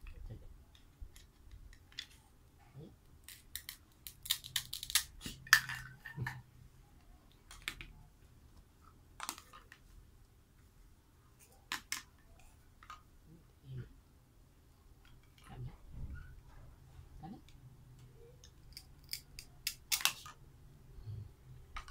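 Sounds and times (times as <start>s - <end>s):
plastic toy pieces clicking: 3.2s - 6.4s, 18.4s - 20.4s.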